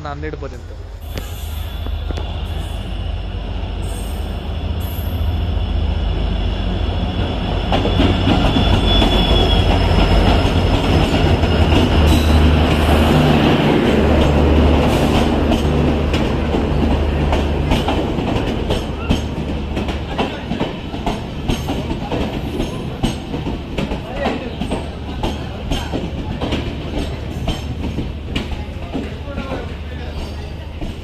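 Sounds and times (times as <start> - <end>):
locomotive rumble: 0.0 - 31.0
train wheels clacking over rail joints: 7.6 - 31.0.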